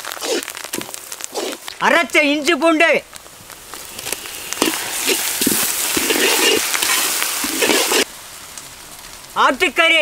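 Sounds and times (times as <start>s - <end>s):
paste sizzling in hot oil: 3.2s - 8.1s.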